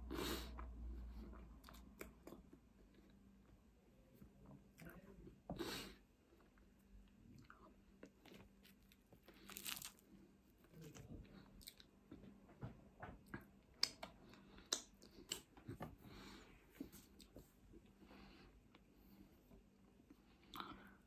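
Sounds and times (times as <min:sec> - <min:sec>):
chewing and crunching food: 0:00.1 - 0:03.7, 0:06.3 - 0:12.4, 0:13.2 - 0:18.0.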